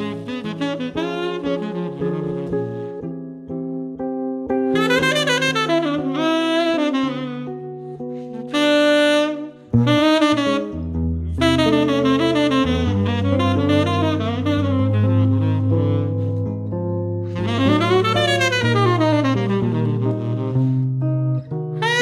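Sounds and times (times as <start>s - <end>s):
electric guitar chords: 0.0s - 22.0s
tenor saxophone melody: 0.0s - 22.0s.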